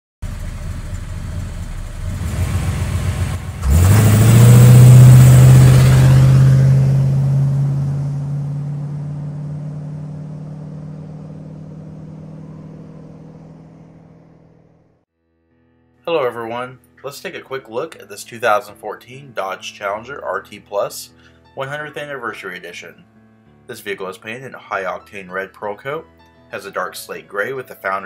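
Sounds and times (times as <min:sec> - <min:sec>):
car engine rumbling and revving: 0:00.2 - 0:15.0.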